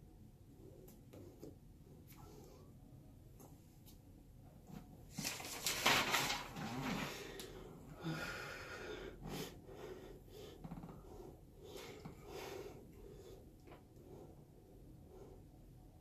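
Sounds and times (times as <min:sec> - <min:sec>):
person breathing out heavily: 0:06.8 - 0:10.6.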